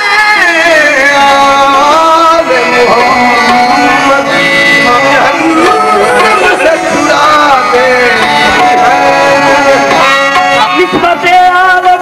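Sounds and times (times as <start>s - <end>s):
harmonium and keyboard melody: 0.0s - 12.0s
tabla drumming: 0.0s - 12.0s.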